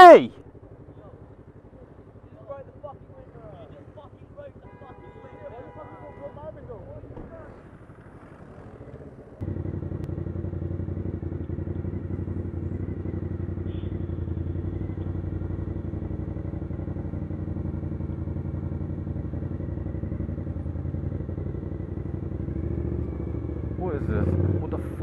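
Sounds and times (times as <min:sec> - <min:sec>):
motorbike engine at low revs: 0:07.5 - 0:25.0.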